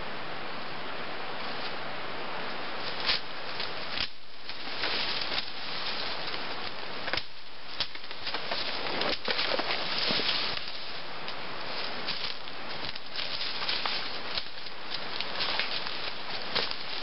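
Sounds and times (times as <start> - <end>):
dry leaves and brush rustling: 1.3 - 17.0.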